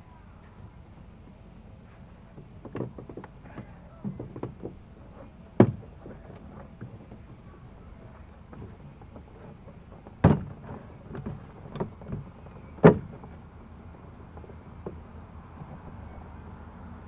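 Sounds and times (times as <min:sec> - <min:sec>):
small clunks: 0:01.8 - 0:16.3
knocks on car door panel: 0:05.6 - 0:05.8.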